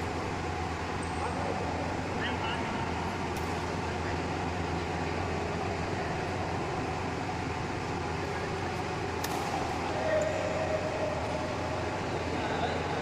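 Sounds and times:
air conditioning hum: 0.0 - 13.0
racket striking shuttlecock: 3.3 - 3.7, 9.2 - 10.5.

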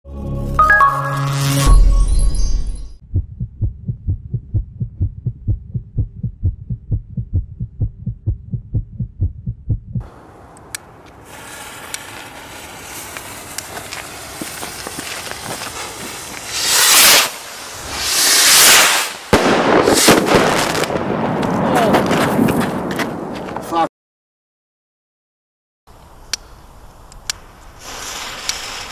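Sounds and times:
pulsing bass beat: 3.0 - 10.0
firework fuse hissing and crackling: 10.8 - 20.9, 26.3 - 28.9.

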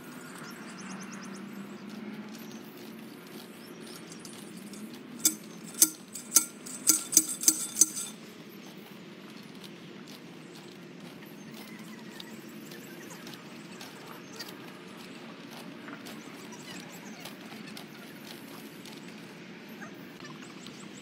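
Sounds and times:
sharp metallic clinks: 3.7 - 8.3
steady low hum: 3.8 - 8.2.

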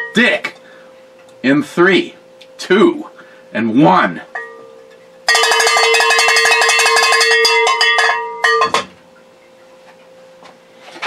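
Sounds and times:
metal bell rung rapidly: 5.3 - 8.8.

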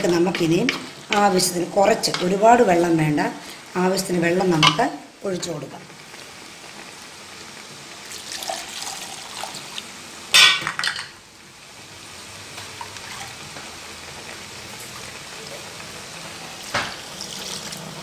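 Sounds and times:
faint steady hiss from pot: 0.0 - 18.0
water pouring into pot: 8.0 - 9.9, 13.0 - 13.4, 16.4 - 18.0.

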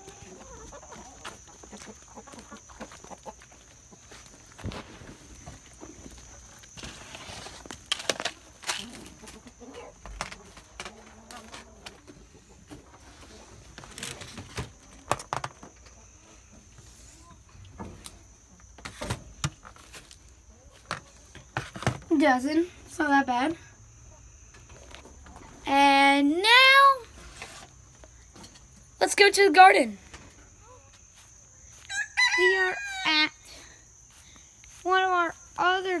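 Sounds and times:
hens clucking: 0.0 - 7.0, 8.4 - 21.9, 23.0 - 25.8
egg handling knocks and rustles: 17.8 - 22.2.

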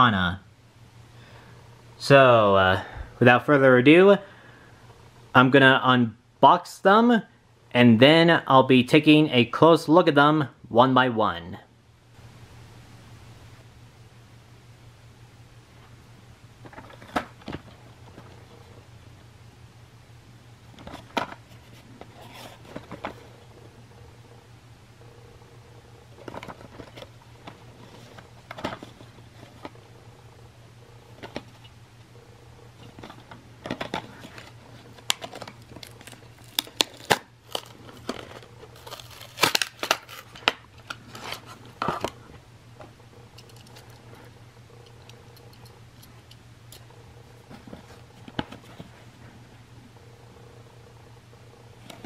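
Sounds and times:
plastic packaging crinkling and tearing: 33.8 - 41.6.

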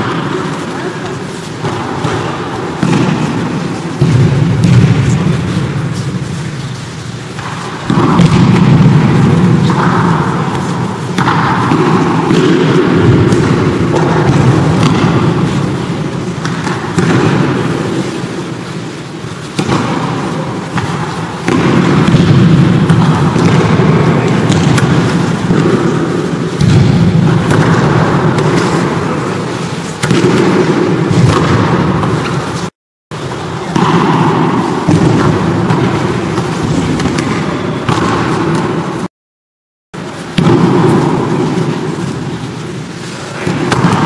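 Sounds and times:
shuffling feet: 0.0 - 7.9.

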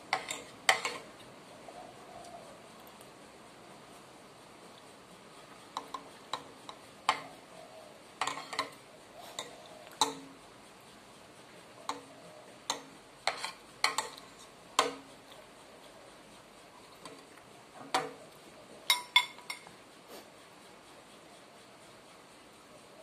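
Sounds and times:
cutlery clinking on ceramic plate: 8.2 - 8.8, 18.9 - 19.7.

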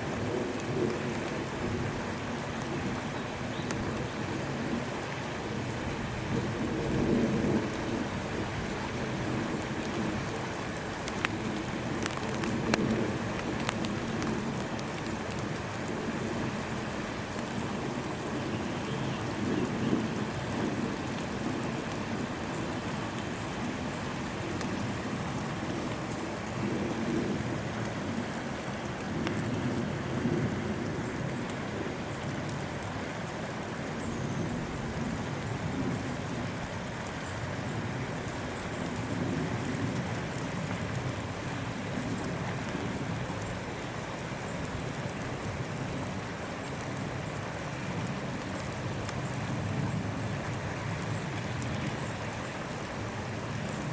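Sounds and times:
wet snow falling hiss: 0.0 - 53.9
faint clicks: 11.0 - 11.4, 12.0 - 15.4.

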